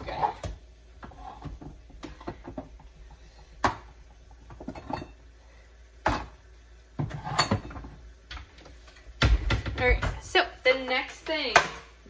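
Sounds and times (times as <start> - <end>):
items knocking in kitchen cupboard: 9.2 - 10.3.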